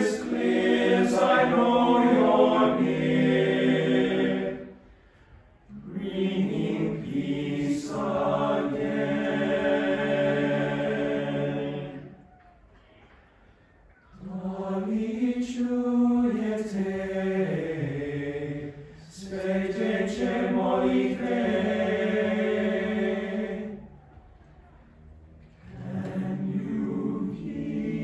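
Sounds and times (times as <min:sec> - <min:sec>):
boys' choir singing a cappella: 0:00.0 - 0:04.9, 0:05.7 - 0:12.2, 0:14.2 - 0:24.0, 0:25.6 - 0:28.0
singer breathing: 0:04.8 - 0:05.5.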